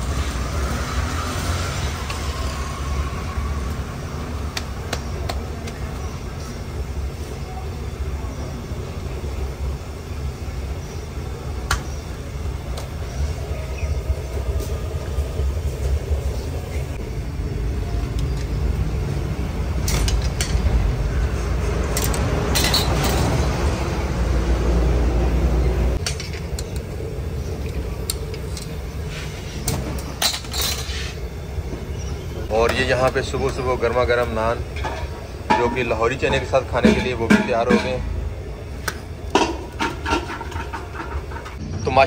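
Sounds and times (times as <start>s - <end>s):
metal skewers clinking: 21.9s - 23.4s.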